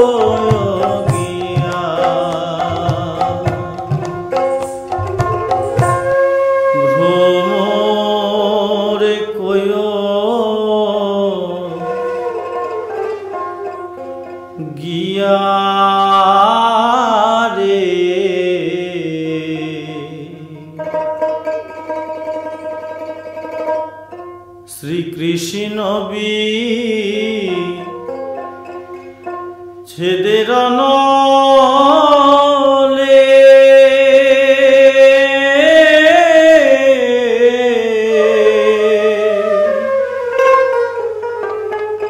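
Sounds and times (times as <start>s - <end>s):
man singing folk song: 0.0s - 4.7s, 6.6s - 12.5s, 14.6s - 21.4s, 24.7s - 28.6s, 29.8s - 40.0s
plucked string instrument: 0.0s - 42.0s.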